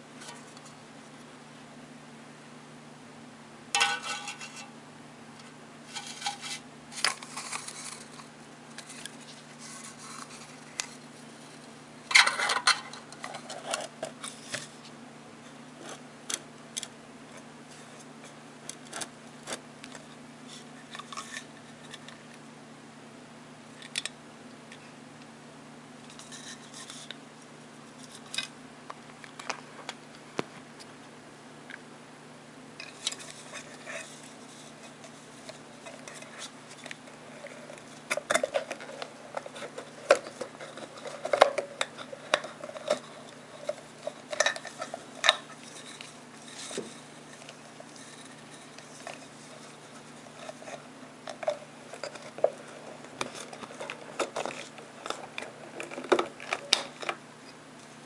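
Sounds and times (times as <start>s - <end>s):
fingers handling aluminium can parts: 3.8s - 4.7s, 34.8s - 49.7s, 50.3s - 57.2s.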